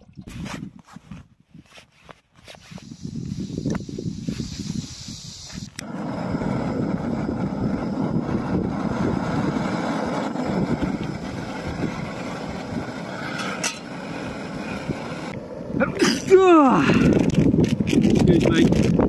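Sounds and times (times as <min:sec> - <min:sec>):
gas stove hissing: 0:02.6 - 0:19.0
metal kettle clinking down: 0:13.3 - 0:14.0.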